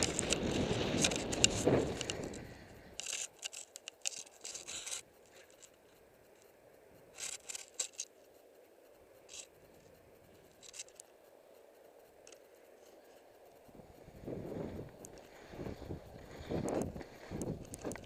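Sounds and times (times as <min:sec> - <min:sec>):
skis scraping across snow: 0:00.0 - 0:06.1, 0:12.3 - 0:18.0.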